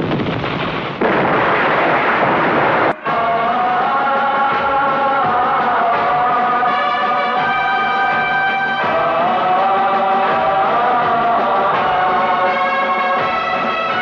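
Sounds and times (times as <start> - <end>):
patriotic song singing over music: 2.9 - 14.0.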